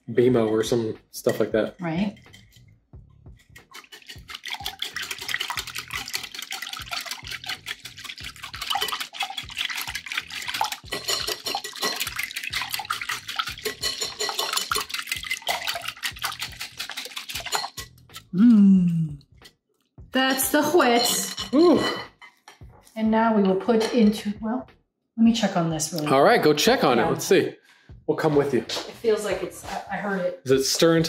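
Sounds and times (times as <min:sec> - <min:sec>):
whisk beating batter in glass bowl: 0:03.5 - 0:18.2.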